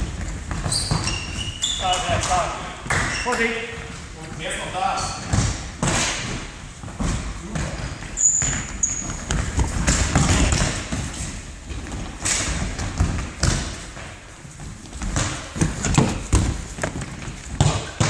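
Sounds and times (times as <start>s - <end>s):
shoe squeak: 0.5s - 2.3s, 2.9s - 3.6s, 4.9s - 5.3s, 8.1s - 9.6s
footsteps running on wooden floor: 6.8s - 18.0s.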